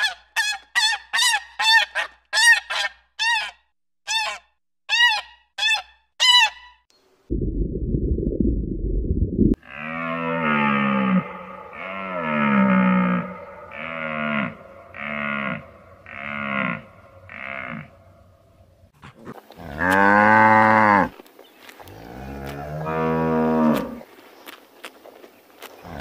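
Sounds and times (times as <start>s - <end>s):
cow mooing: 9.6s - 18.2s, 19.5s - 21.1s, 22.0s - 24.0s.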